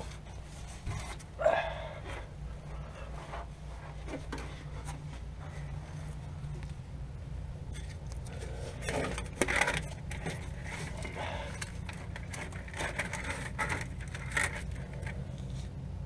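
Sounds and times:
steady low hum: 0.0 - 16.0
hands rattling wiring plugs: 7.7 - 15.6.

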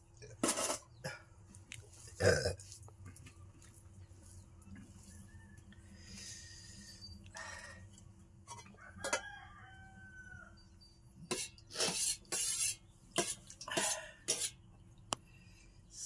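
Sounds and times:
distant rooster crowing: 8.7 - 10.8
spoon scraping metal pots: 11.2 - 14.6.

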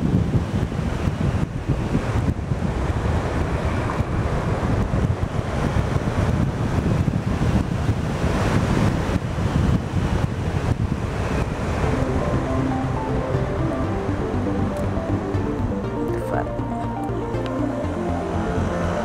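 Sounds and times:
wind buffeting microphone: 0.0 - 13.8.

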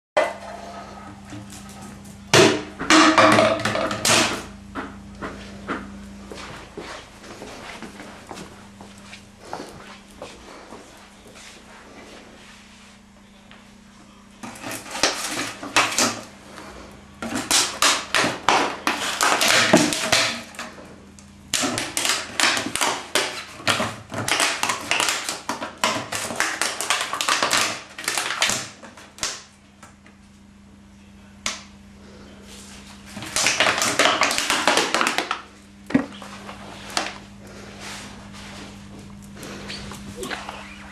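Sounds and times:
dog chewing plastic bottle: 17.2 - 20.4, 21.5 - 28.8.

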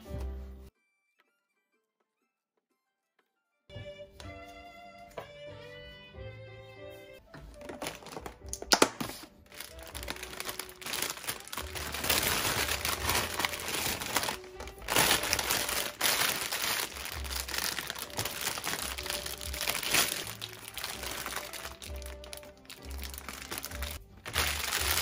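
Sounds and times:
plastic bag crinkling: 7.5 - 25.0.

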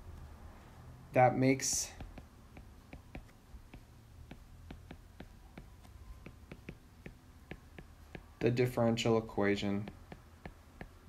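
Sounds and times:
faint low hum: 0.0 - 11.0
stylus tapping on tablet screen: 1.5 - 8.6, 9.8 - 11.0.

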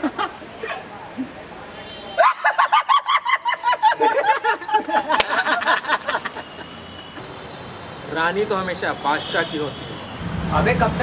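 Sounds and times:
young men laughing: 0.0 - 0.5, 2.2 - 7.4.

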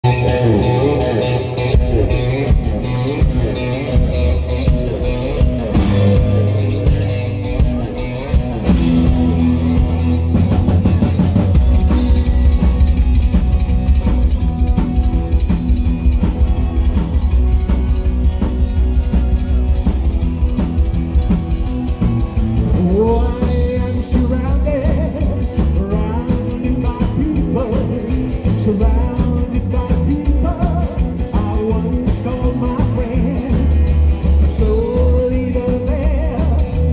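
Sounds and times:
electric guitar: 0.0 - 36.9
upright double bass: 1.5 - 36.9
drums and cymbals: 1.8 - 36.9
person singing: 21.8 - 36.9.

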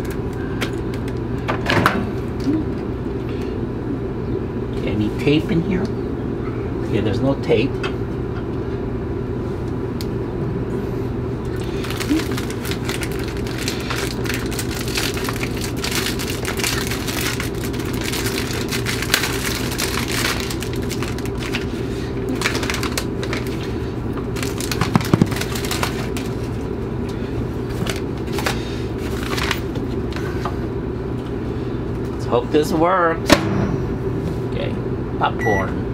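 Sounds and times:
steady low hum: 0.0 - 35.9
plastic wrapping crinkling: 11.6 - 26.7, 27.7 - 30.0.

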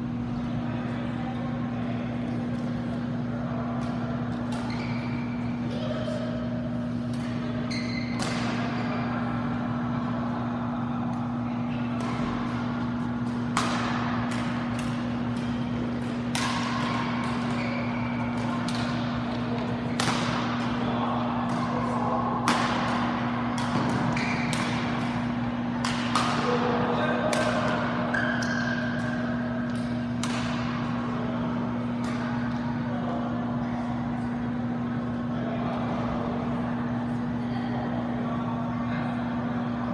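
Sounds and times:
steady low hum: 0.0 - 39.9
racket striking shuttlecock: 8.0 - 8.8, 13.2 - 20.8, 21.5 - 26.6, 27.2 - 30.9.

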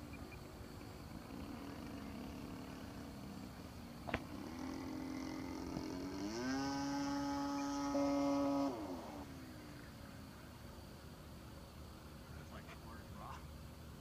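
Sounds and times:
model plane motor droning: 0.0 - 10.7.

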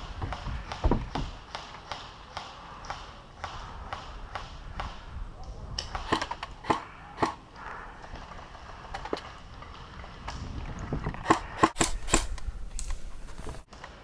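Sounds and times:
airsoft rifle shots: 5.9 - 7.4, 11.2 - 12.5
rustle of movement: 11.8 - 13.7.

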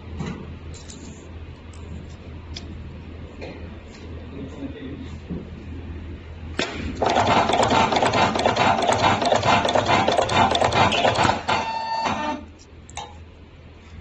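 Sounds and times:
crimping machine rattling: 7.0 - 11.6
machine whine: 7.0 - 12.6.

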